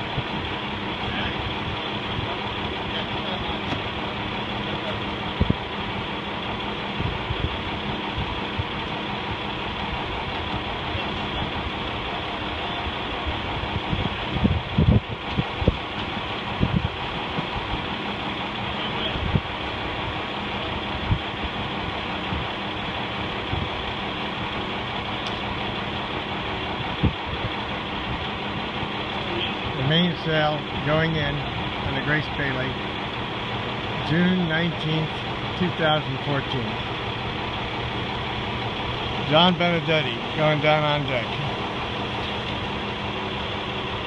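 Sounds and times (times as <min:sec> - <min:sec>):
engine idling hum: 0:00.0 - 0:44.0
dull low thumps: 0:05.3 - 0:05.7, 0:13.6 - 0:17.8.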